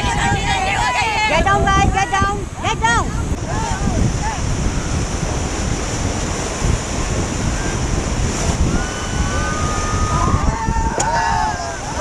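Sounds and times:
whitewater rapids roaring: 0.0s - 12.0s
wind buffeting microphone: 0.0s - 12.0s.

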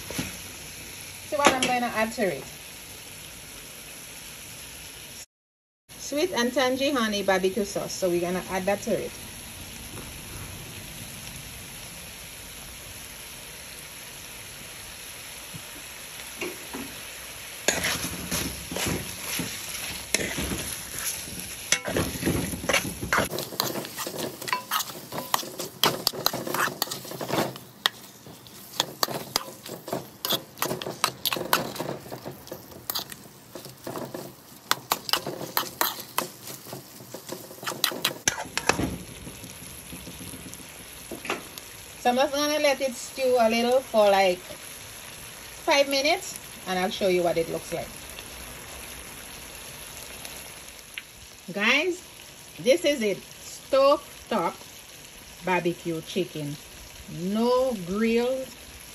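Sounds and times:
chicken sizzling in a pot: 0.0s - 5.3s, 5.9s - 58.9s
spatula scraping a pot: 17.7s - 38.8s.

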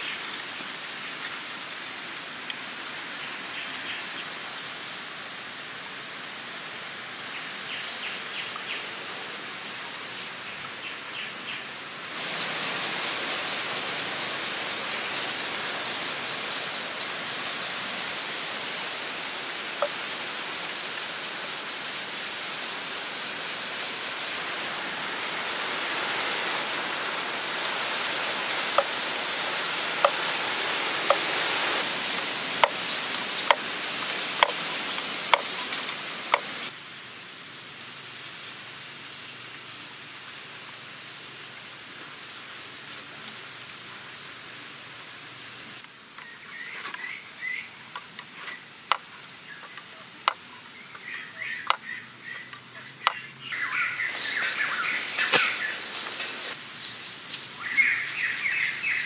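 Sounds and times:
steady rushing noise: 0.0s - 39.0s, 47.2s - 59.0s
sharp knocks of bamboo parts: 34.4s - 34.6s.

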